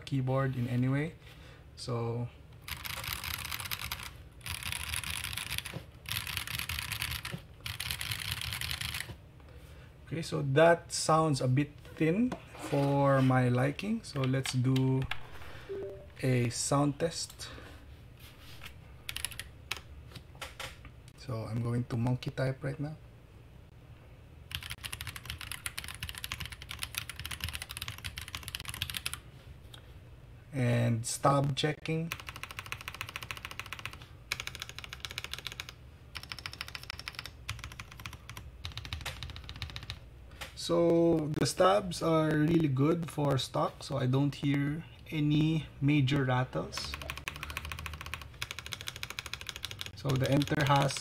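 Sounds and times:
mechanical keyboard typing: 2.6s - 9.2s, 19.1s - 19.8s, 24.5s - 29.2s, 32.1s - 40.0s, 46.1s - 51.0s.

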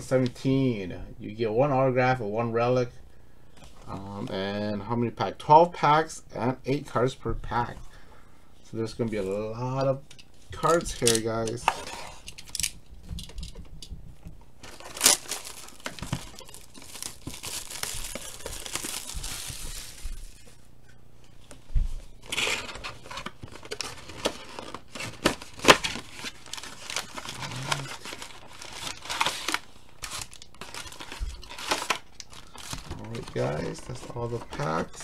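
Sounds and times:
plastic shrink-wrap crinkling and tearing: 14.6s - 20.6s, 22.2s - 35.0s.

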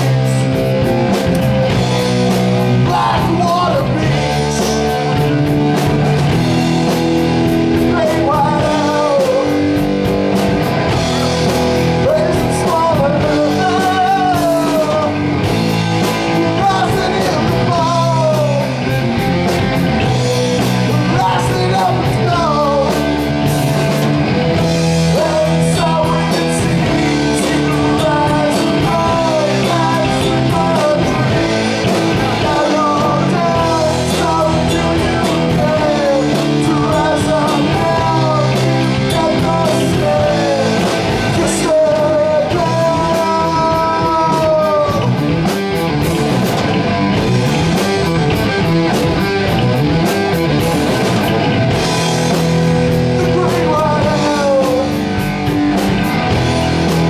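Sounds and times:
person singing: 0.0s - 6.0s, 7.6s - 9.9s, 10.9s - 19.1s, 20.3s - 23.3s, 25.0s - 45.5s, 53.0s - 55.6s
rock band playing: 0.0s - 57.0s.

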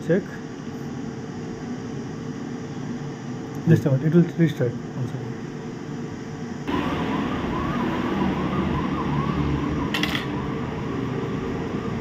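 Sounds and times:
steady hiss: 0.0s - 6.7s
siren wailing: 6.7s - 11.4s.

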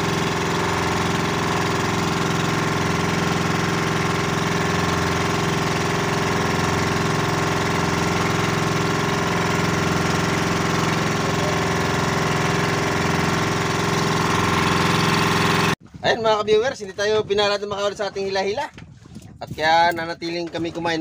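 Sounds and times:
boat engine running: 0.0s - 21.0s.

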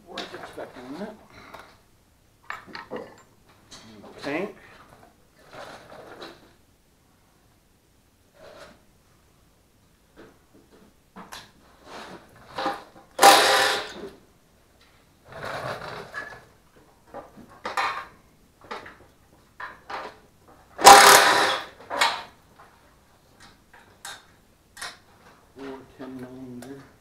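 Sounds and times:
harsh tool bursts: 12.6s - 14.1s, 20.8s - 22.2s.

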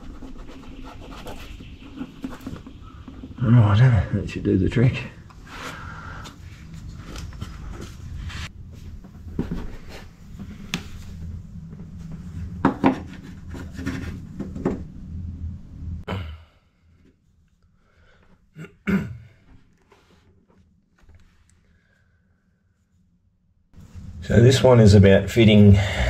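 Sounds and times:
low rumble: 1.7s - 16.1s.

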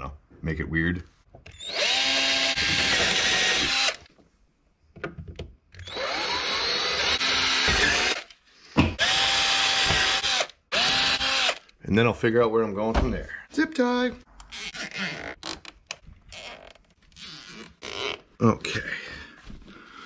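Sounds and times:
cordless drill boring into plastic: 1.5s - 4.1s, 5.8s - 8.4s, 9.0s - 11.7s.

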